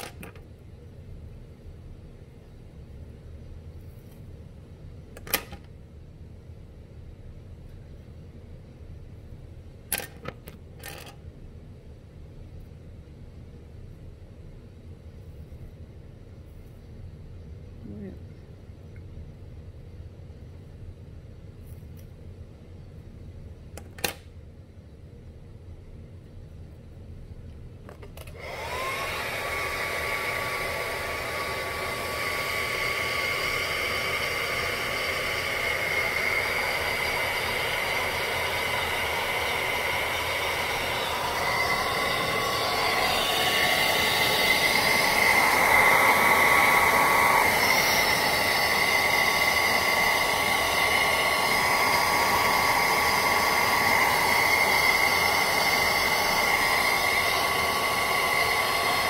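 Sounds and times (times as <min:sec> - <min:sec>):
hair dryer blowing: 0:28.2 - 0:59.0.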